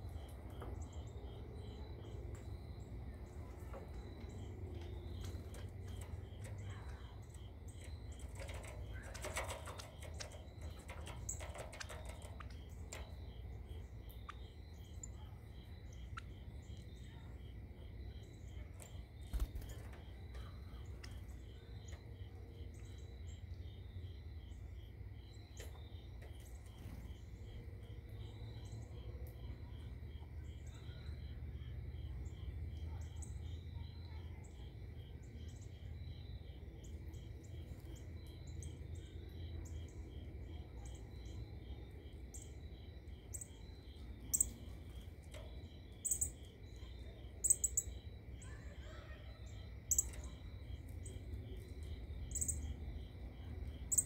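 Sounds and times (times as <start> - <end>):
birds chirping: 0.0 - 17.4, 43.3 - 52.7
low background rumble: 0.0 - 33.9
crickets chirping: 0.0 - 54.0.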